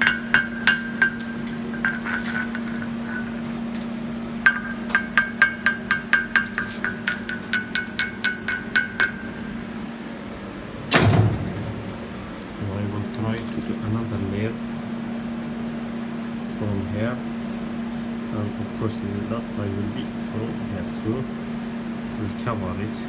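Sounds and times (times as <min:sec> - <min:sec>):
chipping hammer striking metal: 0:00.0 - 0:03.5, 0:04.5 - 0:09.6
steady low hum: 0:00.0 - 0:23.0.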